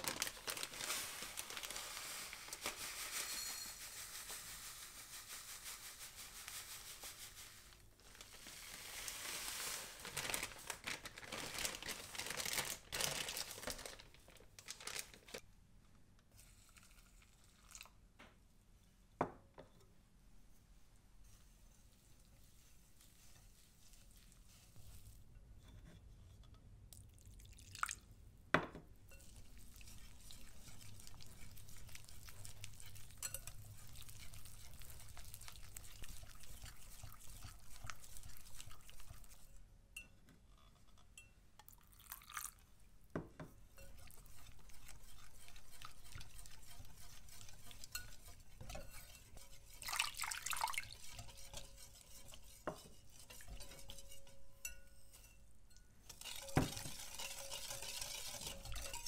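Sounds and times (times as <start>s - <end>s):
whisk swishing in batter: 0.0s - 10.8s, 20.5s - 26.4s, 29.1s - 39.7s, 43.5s - 59.0s
whisk clinking against glass: 3.2s - 4.0s, 29.1s - 40.2s, 43.7s - 59.0s.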